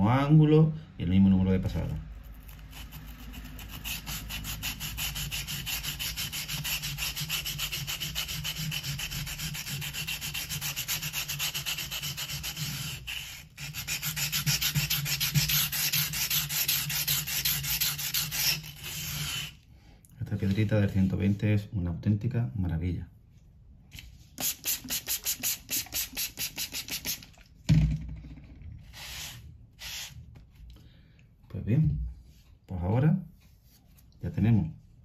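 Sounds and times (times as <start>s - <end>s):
knife scraping on whetstone: 2.4s - 19.6s.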